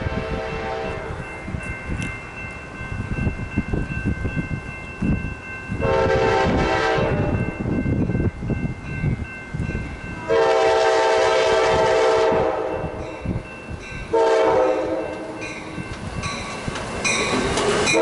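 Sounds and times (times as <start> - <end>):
locomotive horn blasts: 0.0 - 1.2, 5.8 - 7.3, 10.2 - 13.0, 14.1 - 15.3
electronic crossing bell ringing: 12.7 - 18.0.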